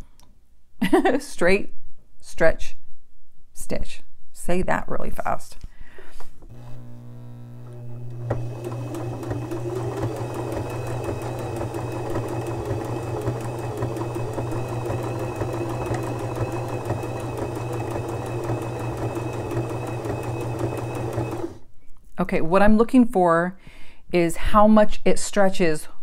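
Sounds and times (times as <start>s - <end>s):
sewing machine motor hum: 6.4s - 21.7s
sewing machine needle clatter: 8.1s - 21.6s.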